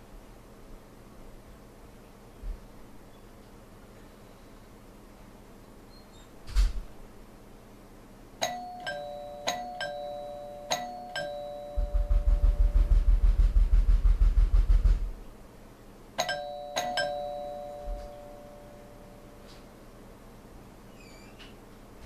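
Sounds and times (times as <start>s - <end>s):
two-tone doorbell chime: 8.4s - 13.2s, 16.2s - 19.6s
loud fast deep pounding: 11.8s - 15.2s.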